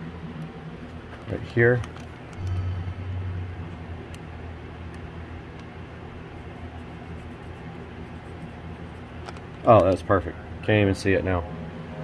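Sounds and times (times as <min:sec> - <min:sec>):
steady low rumble: 0:00.0 - 0:09.6.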